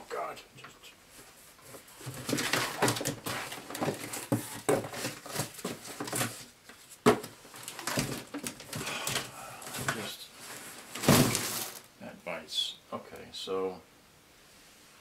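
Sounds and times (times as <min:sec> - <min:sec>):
cardboard and packing material rustling: 0:01.1 - 0:11.9.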